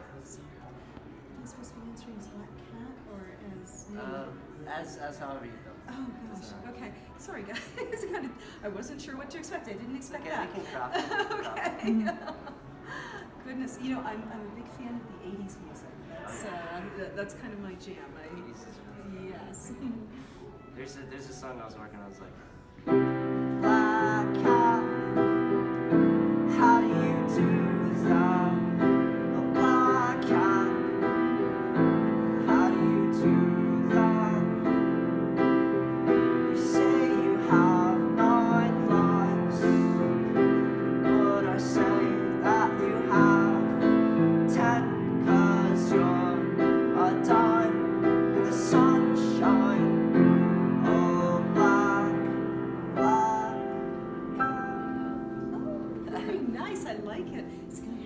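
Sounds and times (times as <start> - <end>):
piano playing chords and melody: 22.8 - 58.0.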